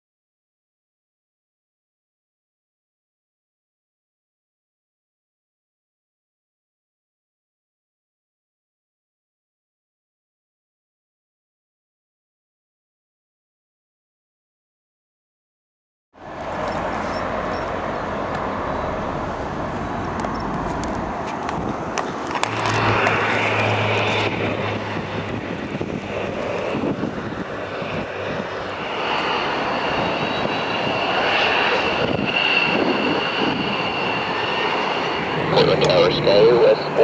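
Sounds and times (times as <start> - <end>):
high turbine whine: 16.2 - 37.0
jet engines rumbling: 16.2 - 37.0.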